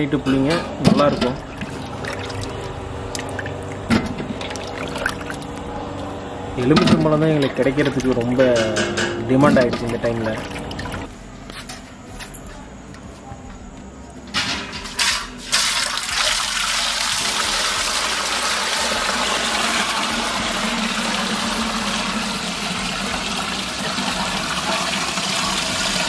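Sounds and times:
liquid splashes: 1.4s - 5.6s, 9.6s - 11.1s
liquid pouring through strainer: 1.5s - 3.6s, 4.4s - 5.6s, 9.7s - 11.1s.

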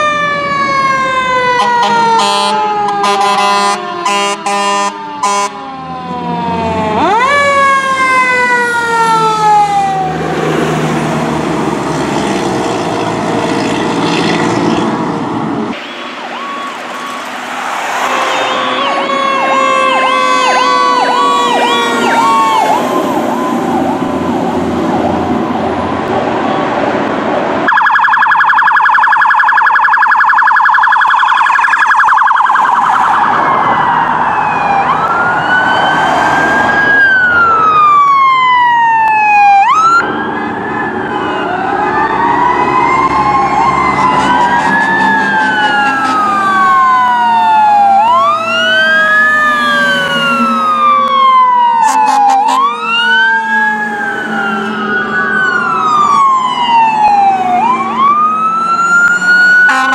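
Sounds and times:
siren warbling yelp: 0.0s - 10.2s, 15.8s - 25.2s, 27.7s - 59.9s
wailing sirens: 0.0s - 59.9s
rapidly pulsing siren tone: 27.7s - 36.0s.

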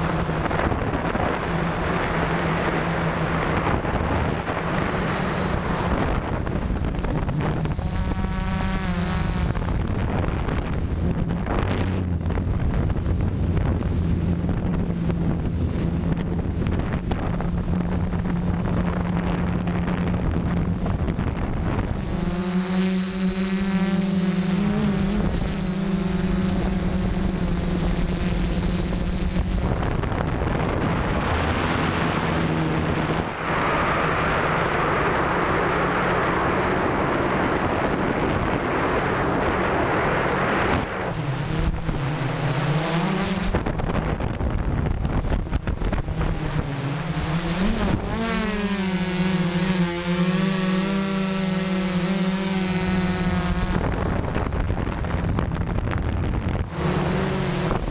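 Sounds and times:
drone motors humming: 0.0s - 57.9s
high motor whine: 0.0s - 57.9s
wind noise on microphone: 0.0s - 57.9s.

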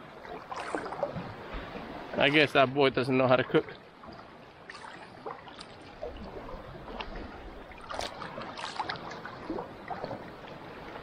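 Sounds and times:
shallow seawater lapping and sloshing: 0.0s - 11.0s
small water splashes: 0.0s - 11.0s.

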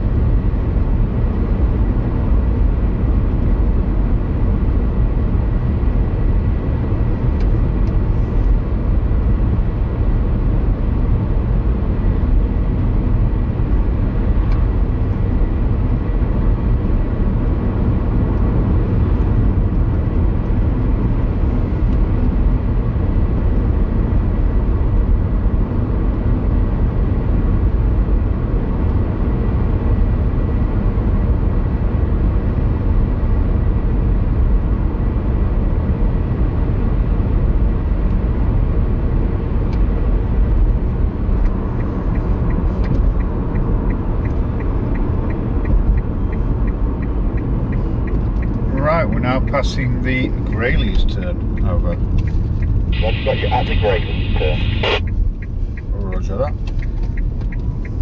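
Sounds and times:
road and engine rumble in car: 0.0s - 58.0s
faint high whine: 52.9s - 55.1s.

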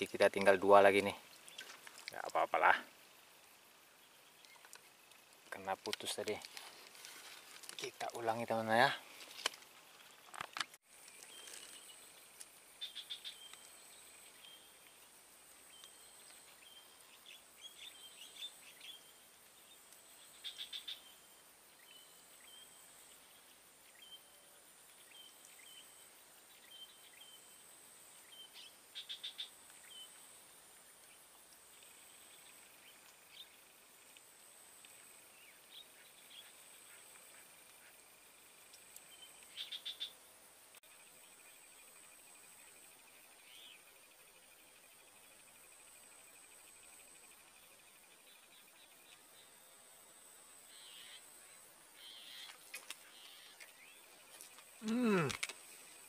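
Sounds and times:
small chirps: 1.2s - 2.7s, 4.0s - 8.2s, 9.0s - 21.2s, 30.8s - 40.2s, 52.0s - 56.0s.

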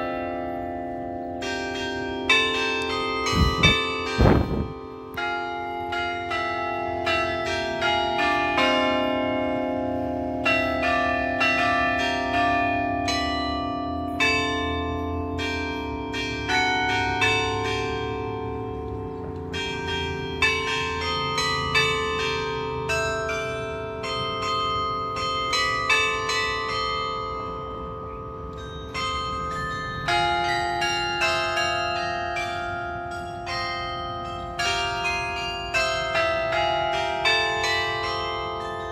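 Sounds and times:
carillon bells playing melody: 0.0s - 38.9s.

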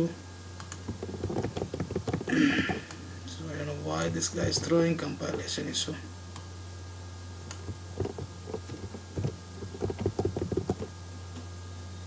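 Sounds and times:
steady low hum: 0.0s - 12.0s
keyboard key taps: 0.7s - 2.8s, 7.5s - 10.9s.

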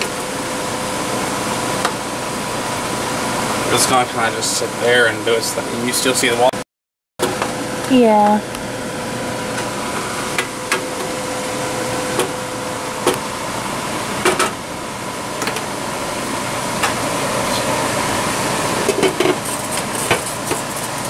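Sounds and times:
stir fry simmering with hiss: 16.1s - 21.0s.

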